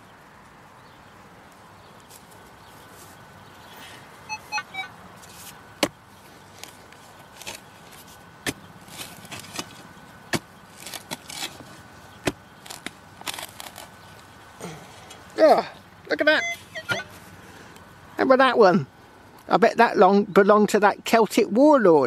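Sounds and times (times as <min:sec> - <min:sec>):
dirt crumbling and scraping: 0:00.8 - 0:03.8, 0:05.1 - 0:15.6
spade chopping into soil: 0:08.4 - 0:13.8.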